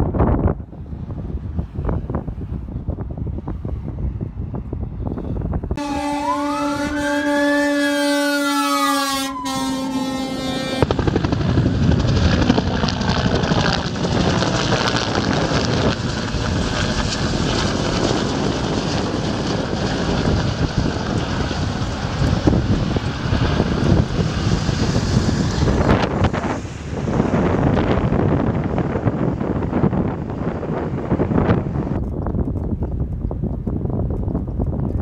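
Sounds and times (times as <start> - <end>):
emergency siren wailing: 5.8 - 11.0
helicopter flying overhead: 8.5 - 35.0.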